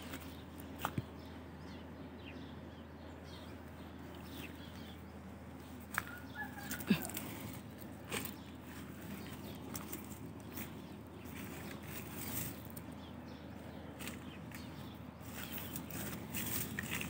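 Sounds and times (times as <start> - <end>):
leaves rustling: 5.9 - 13.0, 13.8 - 17.0.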